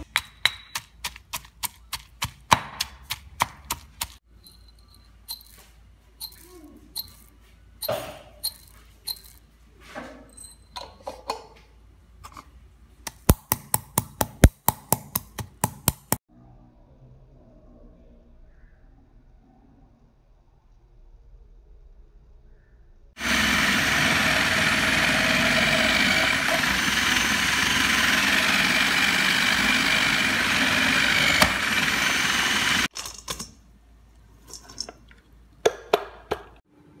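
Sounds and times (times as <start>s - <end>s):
stone pestle pounding in mortar: 0.0s - 4.2s, 13.2s - 16.2s
pestle grinding: 0.0s - 4.7s, 13.1s - 16.2s, 23.2s - 32.9s.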